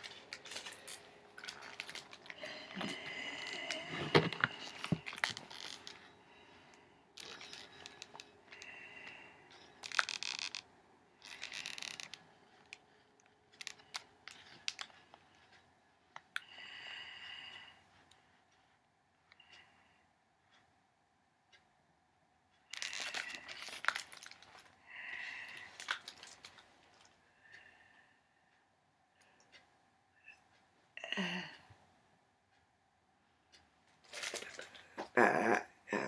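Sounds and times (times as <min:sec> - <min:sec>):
handling clicks and knocks: 0:00.0 - 0:06.0
magazine pages rustling: 0:00.0 - 0:06.0.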